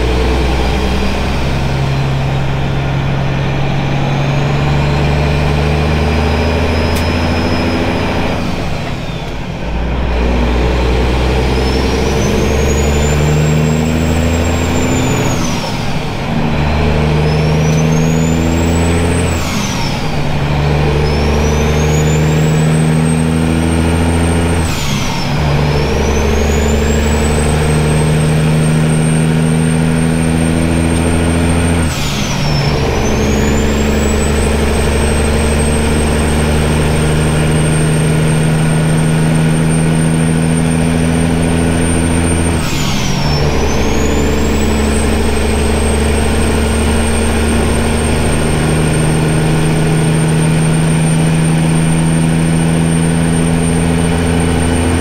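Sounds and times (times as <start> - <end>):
diesel truck engine pulling: 0.0 - 55.0
high turbo whistle: 6.2 - 9.7, 11.2 - 16.0, 21.0 - 23.6, 31.2 - 54.7.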